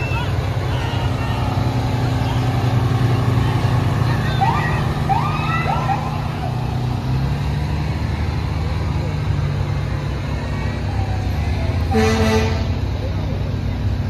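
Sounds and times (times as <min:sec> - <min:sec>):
crowd voices and shouts: 0:00.0 - 0:07.3
fire engine rumbling: 0:00.0 - 0:14.0
vehicle horn blast: 0:11.9 - 0:12.8.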